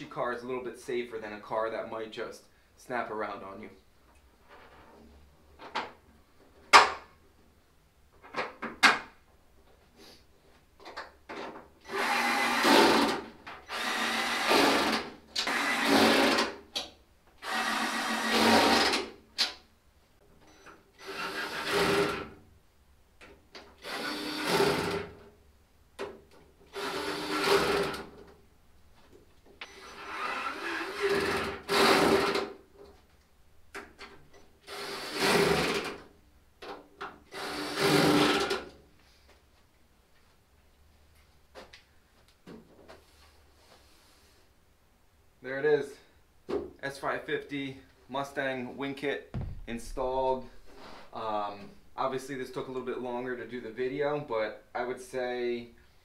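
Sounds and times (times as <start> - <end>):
cordless drill driving bolts: 11.8 - 16.6, 17.4 - 19.1, 20.5 - 22.2, 23.8 - 25.0, 26.7 - 28.1, 29.6 - 32.6, 34.6 - 36.0, 37.3 - 38.7
knocks of parts being handled: 49.3 - 50.0.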